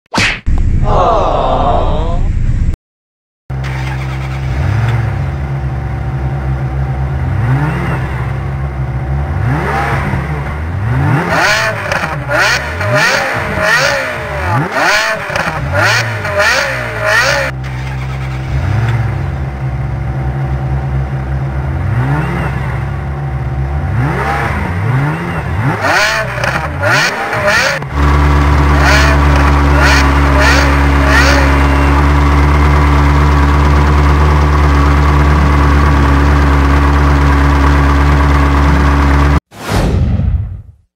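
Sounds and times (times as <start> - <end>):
engines revving: 3.5 - 39.4
supercar engines idling: 16.8 - 21.9, 27.9 - 39.4.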